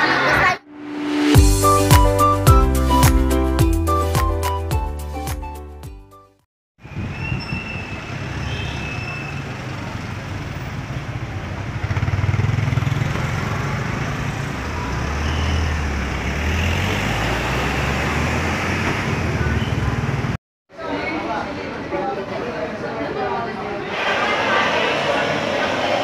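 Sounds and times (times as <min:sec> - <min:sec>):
street traffic rumble: 0:06.8 - 0:20.4.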